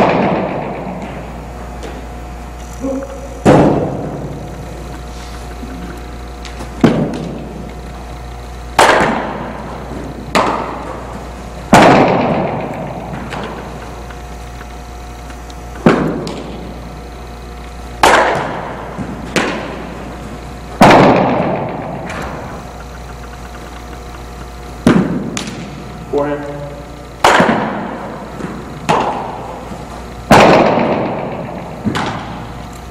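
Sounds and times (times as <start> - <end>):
echoing baseball impacts: 0.0 - 2.5, 3.1 - 26.3, 27.0 - 32.9.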